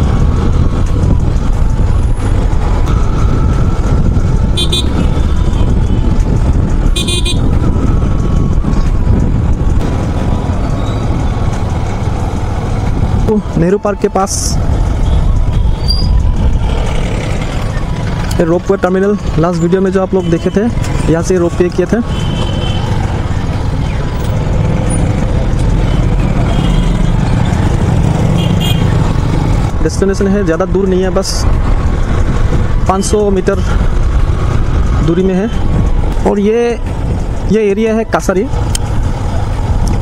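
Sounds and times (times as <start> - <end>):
motorcycle engine: 0.0 - 13.6, 14.4 - 30.5
surrounding traffic: 0.0 - 40.0
wind rumbling on microphone: 0.0 - 40.0.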